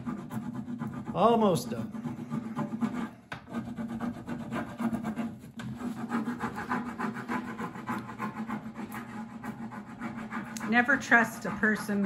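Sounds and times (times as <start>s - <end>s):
scratchy rubbing on plastic sheet: 0.0s - 12.0s.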